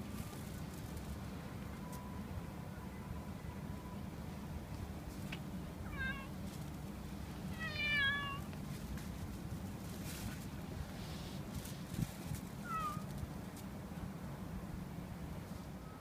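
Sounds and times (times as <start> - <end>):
cat meowing: 5.9 - 6.3, 7.5 - 8.5, 12.6 - 13.1.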